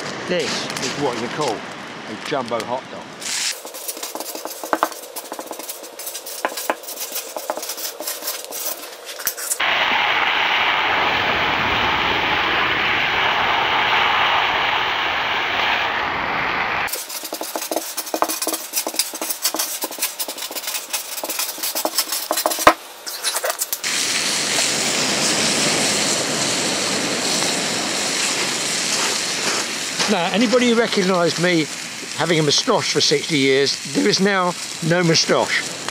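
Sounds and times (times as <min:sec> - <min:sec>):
hot dogs sizzling in frying pan: 0:03.2 - 0:09.6, 0:16.9 - 0:35.9
marker scratching on paper: 0:03.5 - 0:09.6, 0:16.9 - 0:23.8.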